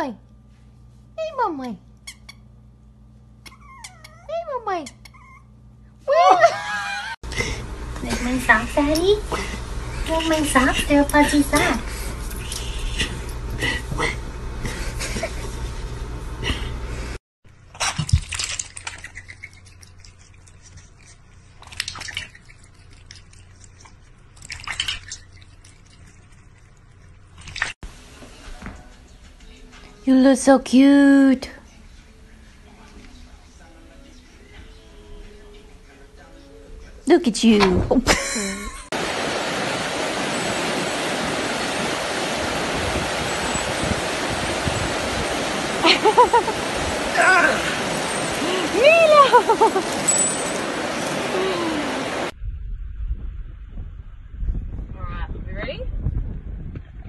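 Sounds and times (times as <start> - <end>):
water splashing in metal bowl: 17.7 - 27.8
river water rushing over rocks: 39.0 - 52.3.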